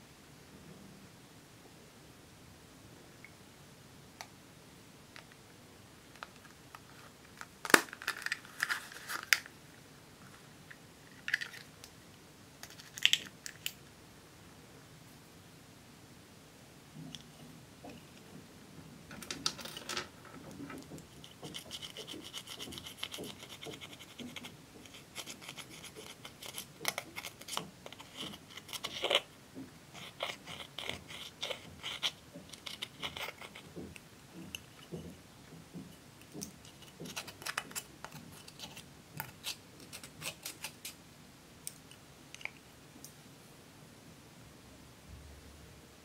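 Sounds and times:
scissors scratching eyeshadow: 0:21.1 - 0:29.3, 0:29.9 - 0:33.7, 0:36.6 - 0:41.0.

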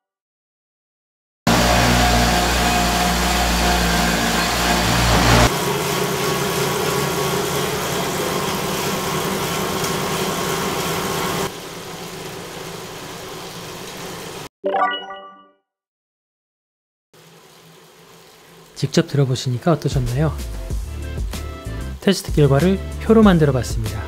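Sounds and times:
bike tyres on indoor rollers: 0:01.5 - 0:14.5, 0:17.2 - 0:21.4.

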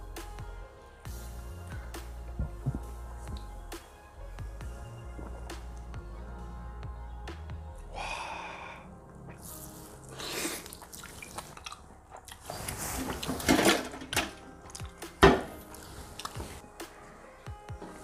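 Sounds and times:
wet slurping and sucking: 0:09.2 - 0:13.4, 0:15.7 - 0:16.4.

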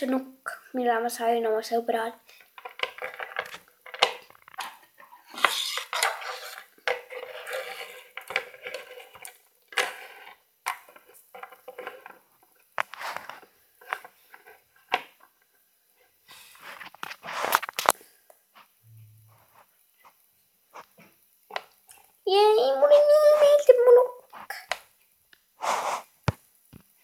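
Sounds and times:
rustling: 0:02.3 - 0:22.2, 0:25.6 - 0:27.0
plastic toys clicking on wooden table: 0:02.6 - 0:04.8.

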